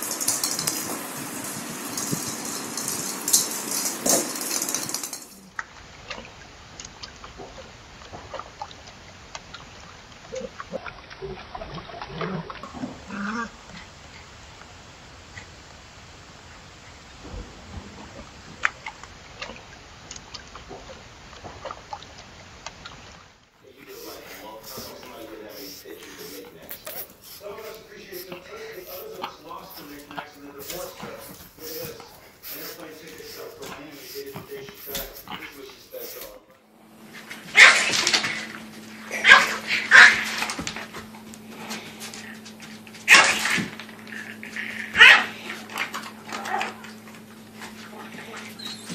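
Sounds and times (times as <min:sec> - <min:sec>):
steady hiss: 0:00.0 - 0:05.5, 0:23.6 - 0:37.2
dog barking: 0:37.5 - 0:38.2, 0:39.1 - 0:40.4, 0:43.1 - 0:43.6, 0:44.8 - 0:45.6.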